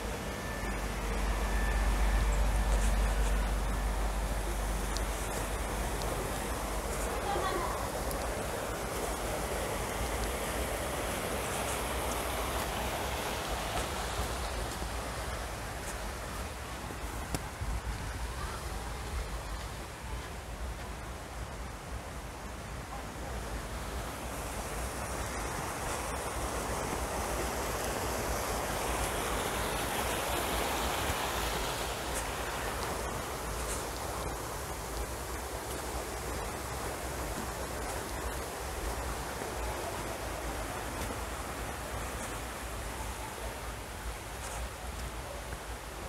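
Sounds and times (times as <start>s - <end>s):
sea surf: 0.0s - 19.1s, 24.2s - 45.5s
wind: 0.0s - 46.0s.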